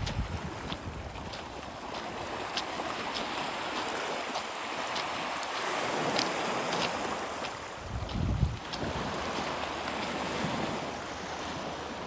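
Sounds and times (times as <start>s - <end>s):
waves washing onto rocky beach: 0.0s - 12.0s.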